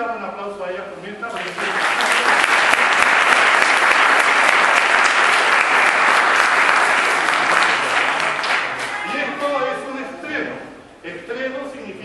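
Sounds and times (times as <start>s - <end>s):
audience applauding: 1.3s - 9.7s.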